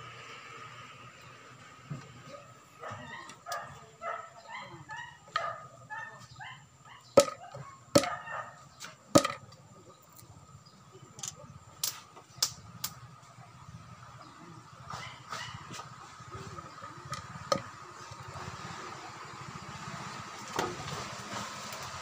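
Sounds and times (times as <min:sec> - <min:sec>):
dog yipping: 0:02.3 - 0:08.6, 0:14.9 - 0:15.7
wooden knocks on stool: 0:07.2 - 0:07.4, 0:09.2 - 0:09.4.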